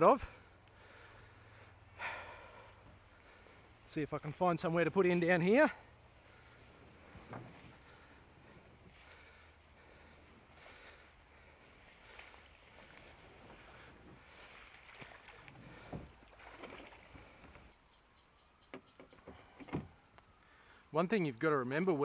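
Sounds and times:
high-pitched insect chorus: 0.0s - 22.0s
kayak paddle knocks and splashes: 13.6s - 17.7s.

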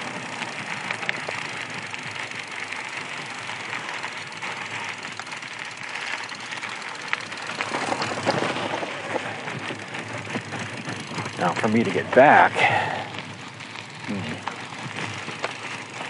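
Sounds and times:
bike tyres rolling on gravel: 0.0s - 16.0s
grit ticking: 0.0s - 16.0s.

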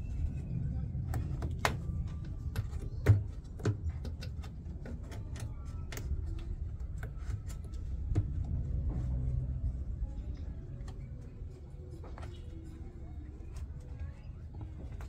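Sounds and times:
low background rumble: 0.0s - 15.0s.

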